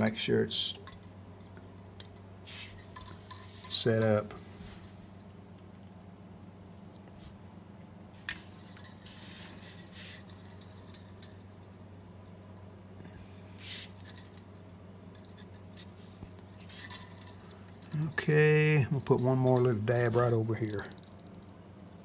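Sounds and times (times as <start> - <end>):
hands rubbing and scuffing: 13.6 - 14.0.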